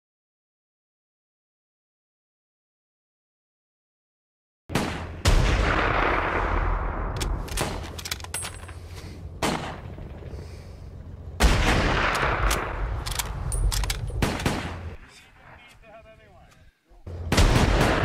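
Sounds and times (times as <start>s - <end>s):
gunshots with echoing rumble: 4.7s - 8.2s, 9.2s - 15.6s, 17.1s - 18.0s.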